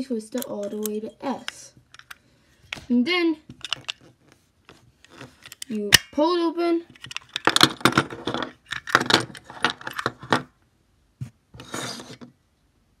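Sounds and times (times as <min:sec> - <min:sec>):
padlock rattling and clicking: 0:00.4 - 0:02.2, 0:03.6 - 0:04.1, 0:07.0 - 0:10.4
lock scraping on wooden table: 0:11.6 - 0:12.3.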